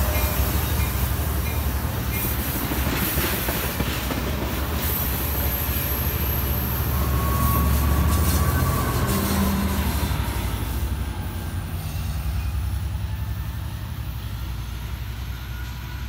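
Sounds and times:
train wheels rumbling on rail: 0.0 - 16.0
wheel squeal: 4.9 - 10.4.

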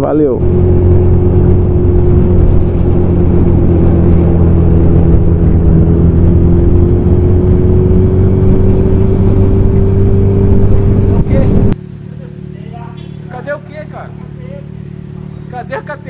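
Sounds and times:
wind rushing over microphone: 0.0 - 11.8
motorcycle engine cruising: 0.0 - 16.0.

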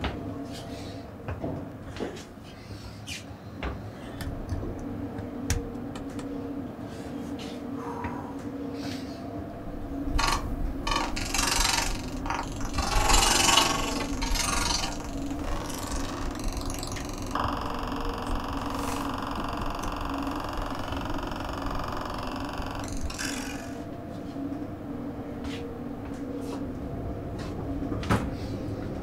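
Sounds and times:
electronic buzzing drone: 9.4 - 28.0
stuttering crackle: 10.2 - 23.8.

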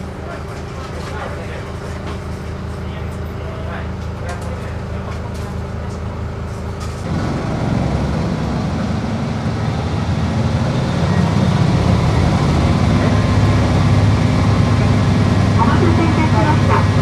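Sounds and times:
diesel railcar engine: 0.0 - 17.0.

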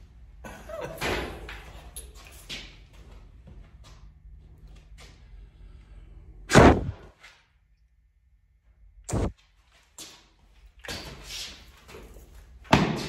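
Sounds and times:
low steady hum: 0.0 - 9.7.

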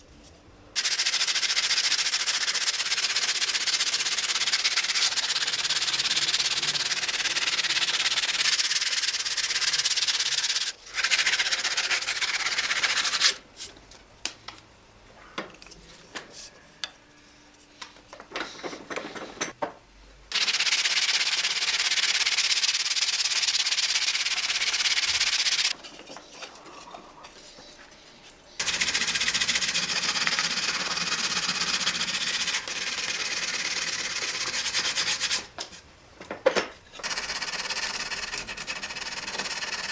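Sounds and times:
sandpaper rubbing on wood: 0.8 - 13.4, 20.3 - 25.8, 28.6 - 35.5, 37.0 - 39.9.

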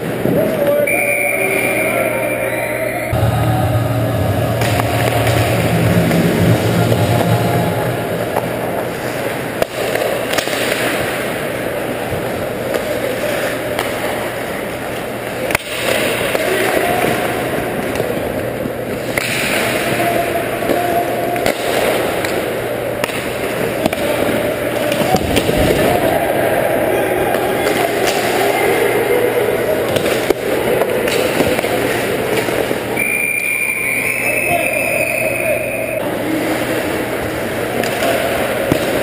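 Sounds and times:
hockey sticks and puck clacking: 8.4 - 25.9, 29.9 - 33.0, 37.7 - 39.0.

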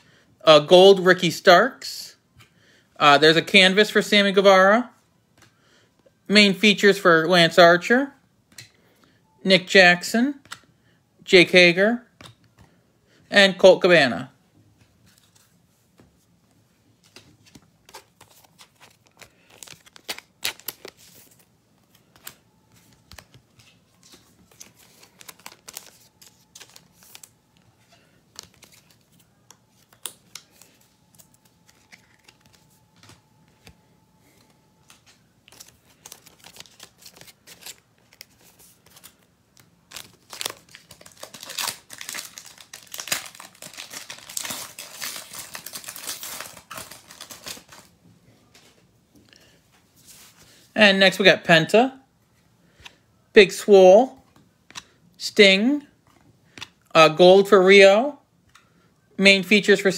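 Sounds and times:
card pack wrapper tearing and crinkling: 17.4 - 21.4, 24.0 - 27.3, 28.3 - 29.2, 29.8 - 32.6, 35.5 - 47.9.

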